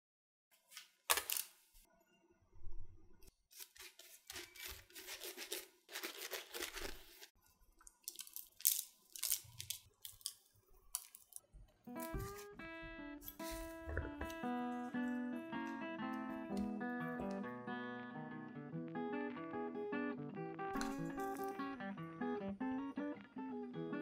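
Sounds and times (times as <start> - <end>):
scraping and rustling strokes: 3.5 - 7.4.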